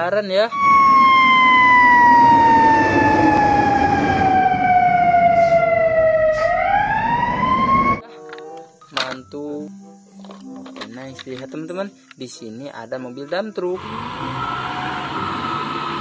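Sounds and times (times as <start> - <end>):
fire engine siren wailing: 0.5 - 8.0, 13.8 - 16.0
street noise: 0.5 - 8.0, 13.7 - 16.0
truck engine: 13.8 - 16.0.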